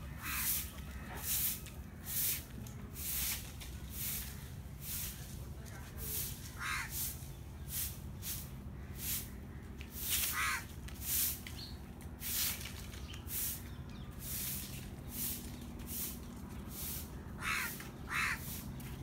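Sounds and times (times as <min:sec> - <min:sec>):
crow cawing: 0:00.2 - 0:01.2, 0:06.6 - 0:07.0, 0:10.3 - 0:10.7, 0:17.4 - 0:18.6.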